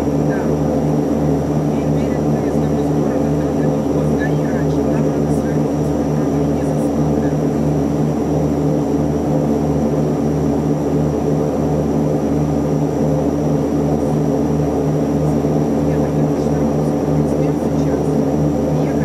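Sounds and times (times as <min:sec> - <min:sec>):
propeller drone inside aircraft cabin: 0:00.0 - 0:19.0.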